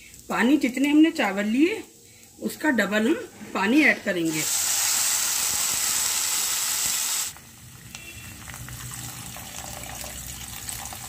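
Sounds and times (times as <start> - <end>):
loud sizzling hiss: 4.2 - 7.6
water pouring into pan: 8.4 - 11.0.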